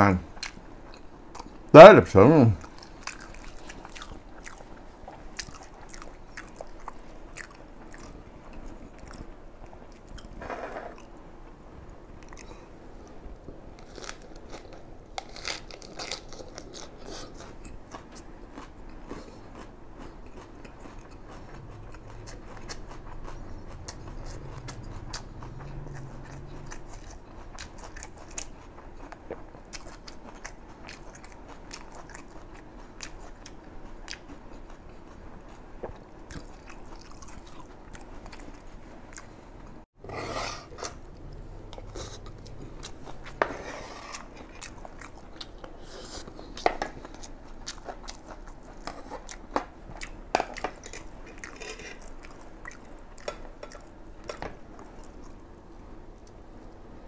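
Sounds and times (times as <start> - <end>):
close chewing with mouth clicks: 0.4 - 1.7, 2.6 - 11.2, 12.2 - 13.2, 13.8 - 39.4, 41.0 - 43.4, 44.1 - 56.8
low hum: 21.0 - 27.6.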